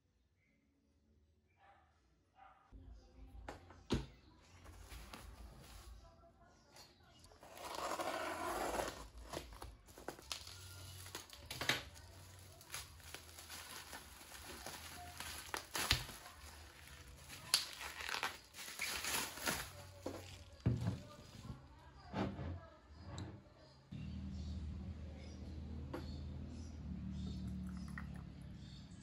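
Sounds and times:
bubble wrap crinkling and tearing: 7.4 - 20.7.

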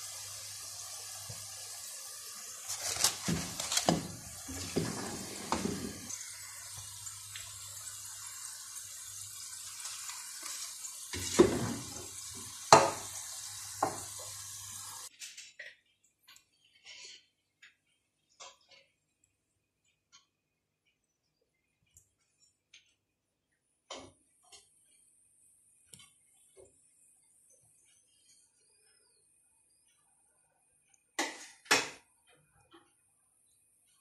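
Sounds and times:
potatoes deep-frying in oil: 0.0 - 15.1
metal skimmer scraping a pan: 2.7 - 6.2, 9.9 - 13.1.

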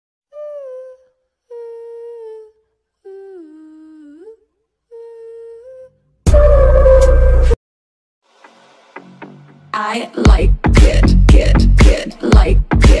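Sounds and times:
person humming long notes: 0.3 - 7.5
loud music: 8.5 - 13.0.

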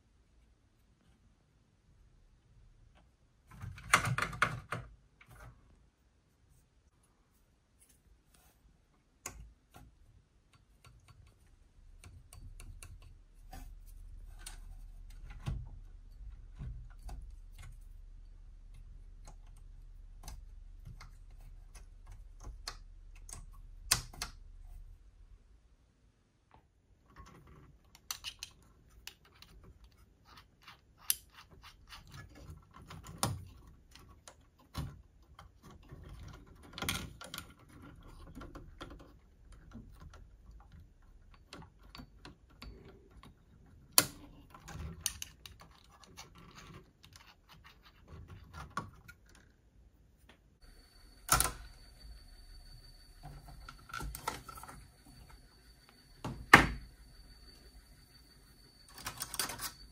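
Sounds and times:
small parts and tools clicking: 27.0 - 49.6, 50.6 - 59.9
high whine with hiss: 50.6 - 59.9.

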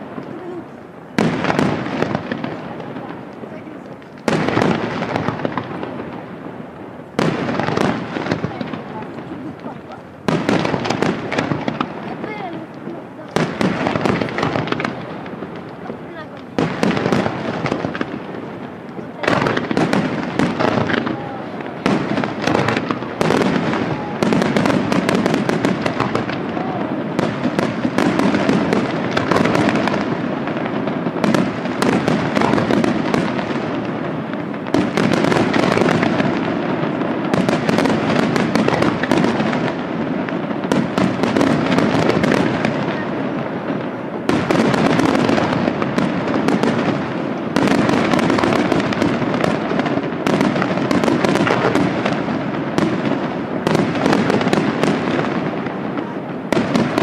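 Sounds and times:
fireworks launching and bursting: 0.0 - 57.0.

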